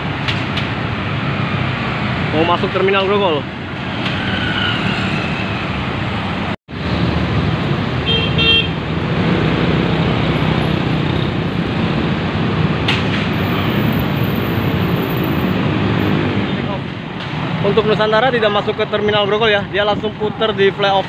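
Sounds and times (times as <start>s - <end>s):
heavy road traffic: 0.0s - 21.0s
vehicle horn tooting: 8.0s - 8.8s.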